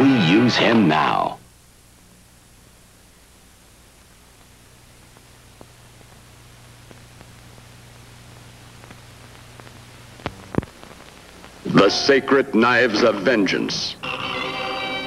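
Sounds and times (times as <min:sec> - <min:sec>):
film soundtrack hiss: 0:00.0 - 0:15.0
low hum: 0:01.4 - 0:11.7
faint pops: 0:04.0 - 0:11.7.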